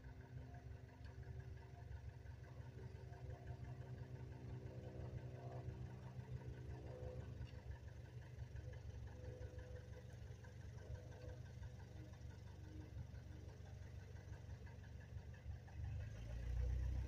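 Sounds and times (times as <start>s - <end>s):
faint engine drone: 0.0s - 17.0s.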